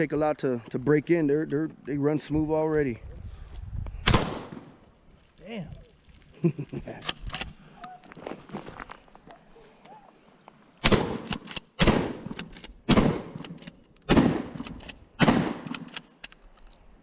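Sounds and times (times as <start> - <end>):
loud shotgun shots: 4.0 - 4.7, 10.8 - 13.5, 14.1 - 15.9
shotgun pump action clacking: 11.2 - 15.0, 15.6 - 16.8.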